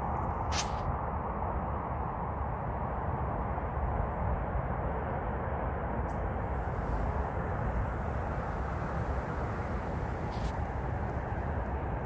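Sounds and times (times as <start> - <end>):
low rumble: 6.0 - 12.0.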